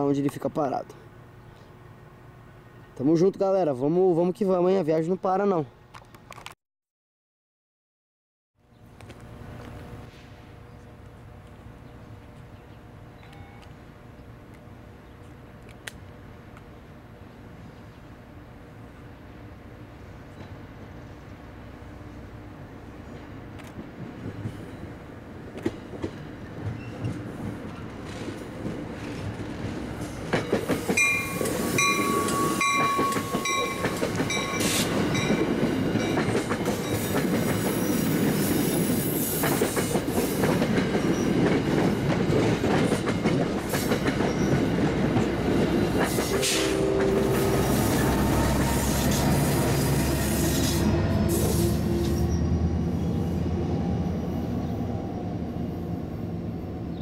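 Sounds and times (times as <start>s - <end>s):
train wheels rumbling on rails: 23.0s - 55.6s
clickety-clack over rail joints: 25.5s - 47.2s
repeated ringing tones: 31.0s - 36.1s.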